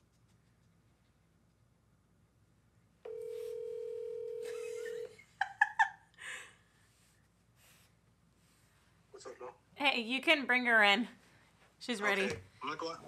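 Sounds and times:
phone ringback tone: 3.1 - 5.1.

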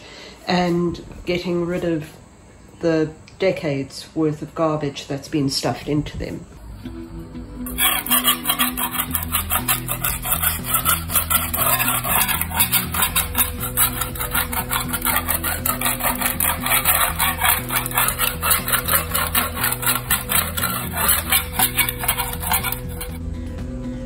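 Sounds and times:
background music: 6.6 - 24.0
hand scraper rasping on concrete: 7.7 - 23.2.

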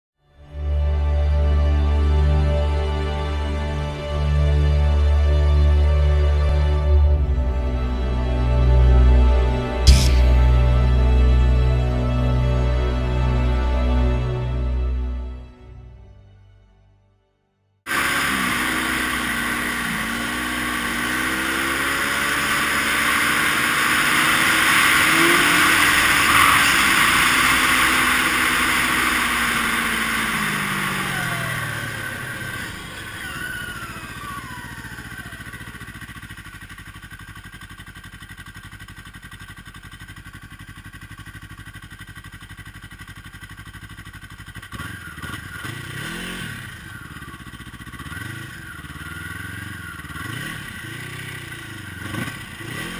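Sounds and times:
snowmobile engine running: 6.8 - 13.0, 17.9 - 52.9.

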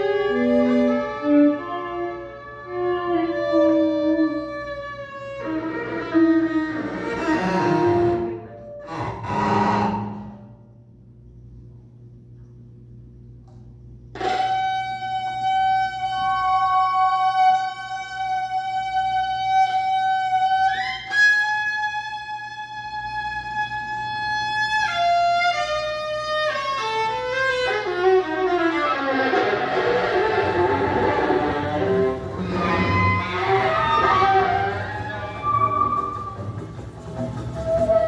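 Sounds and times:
viola bowed: 0.0 - 10.7, 14.2 - 38.0
low hum: 0.0 - 16.9, 28.3 - 38.0.

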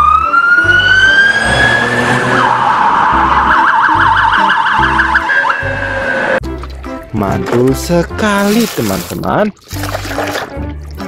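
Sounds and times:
police siren wail and yelp: 0.0 - 6.4.

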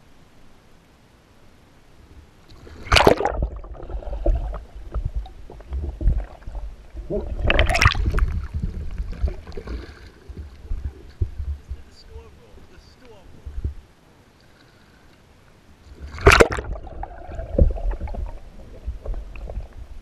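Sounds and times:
muffled underwater gurgling rumble: 2.9 - 14.0, 15.9 - 20.0.

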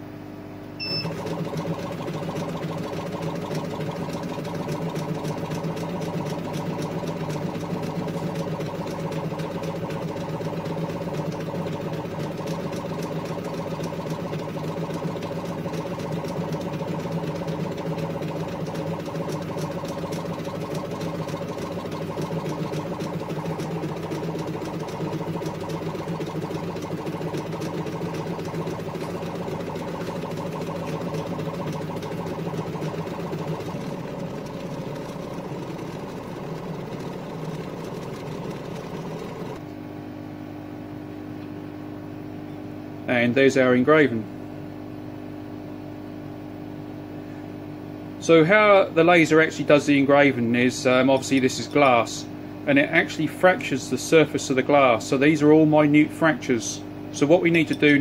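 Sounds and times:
compressor and extractor noise: 0.0 - 58.0
engraver motor whine and ticking: 0.7 - 39.8, 53.0 - 58.0.

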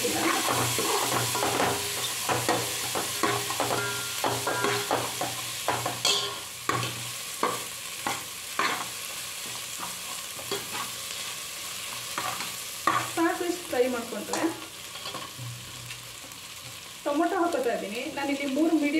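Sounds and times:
onions sizzling in oil: 0.0 - 18.9.

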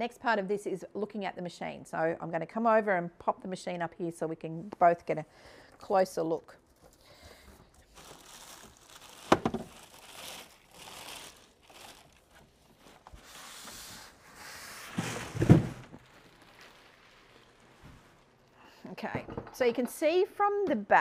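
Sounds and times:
plastic bag crinkling: 6.6 - 14.3, 14.9 - 18.6.

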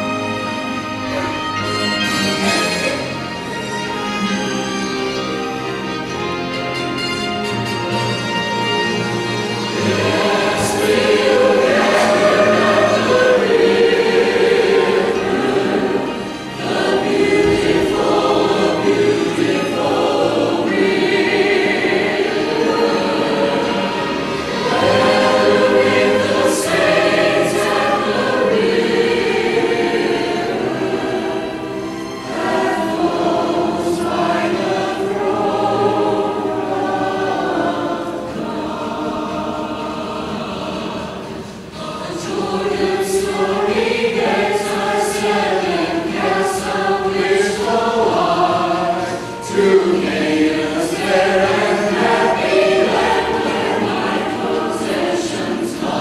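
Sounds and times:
church choir singing: 0.0 - 56.0.

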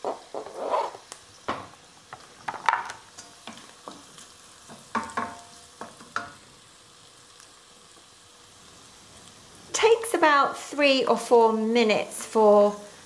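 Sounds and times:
faint sizzle: 0.0 - 13.0
wooden spoon knocking in a pan: 1.5 - 6.4.

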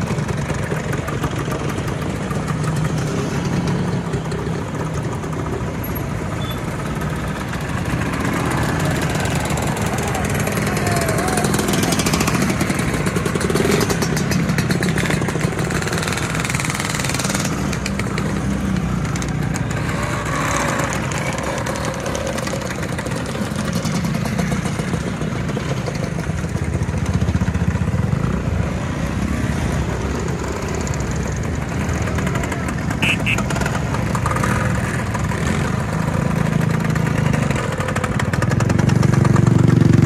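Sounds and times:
motor scooters riding past: 0.0 - 40.0.

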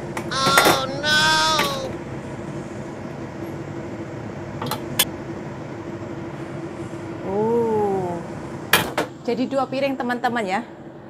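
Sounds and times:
steady motor hum: 0.0 - 8.7.

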